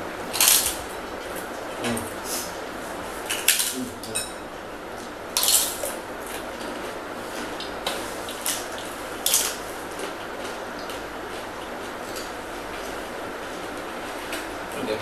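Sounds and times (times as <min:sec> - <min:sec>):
steady background hiss: 0:00.0 - 0:15.0
crackers being crunched: 0:00.3 - 0:00.9, 0:03.3 - 0:04.3, 0:05.3 - 0:12.4.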